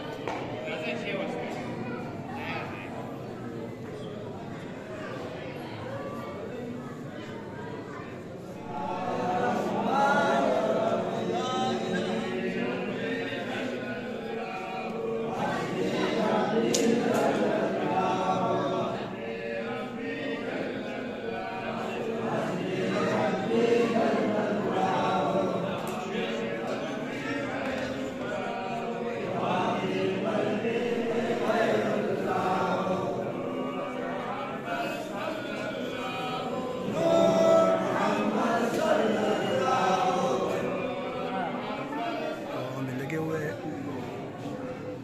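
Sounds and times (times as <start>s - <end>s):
overlapping talk: 0.0s - 45.0s
men chanting: 8.6s - 44.1s.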